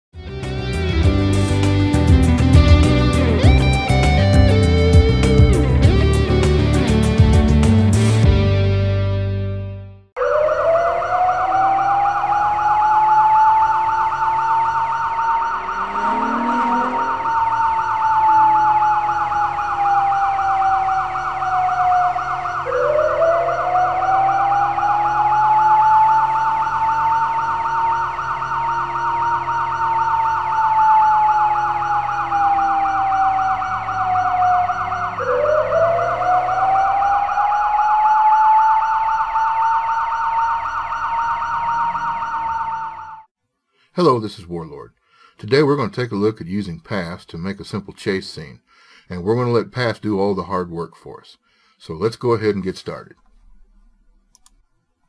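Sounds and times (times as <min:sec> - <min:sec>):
police siren wail: 0:00.6 - 0:08.3, 0:10.2 - 0:43.3
fast warbling siren yelp: 0:10.2 - 0:43.3.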